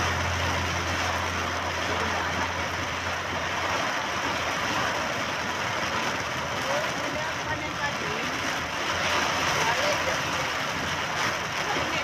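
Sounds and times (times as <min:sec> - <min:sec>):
low hum: 0:00.0 - 0:04.4
tyres and rain hissing: 0:00.0 - 0:12.0.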